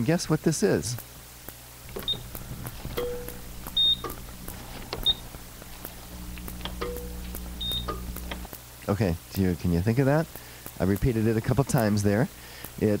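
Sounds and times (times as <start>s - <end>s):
steady low hum: 0.0s - 13.0s
lower tones and clicks: 1.9s - 8.5s
short electronic beeps: 2.0s - 2.3s, 3.0s - 4.2s, 5.0s - 5.2s, 6.9s - 8.0s.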